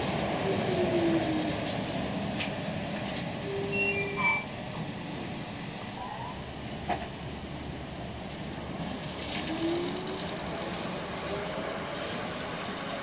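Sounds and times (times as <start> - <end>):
metro train rolling on rails: 0.0 - 13.0.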